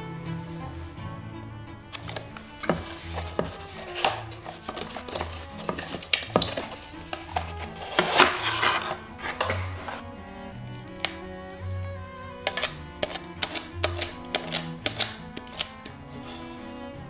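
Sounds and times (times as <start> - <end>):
soft string music: 0.0 - 17.0
paper scraping and rustling: 1.9 - 11.2, 12.4 - 16.3
wooden board knocks and taps: 2.1 - 8.3.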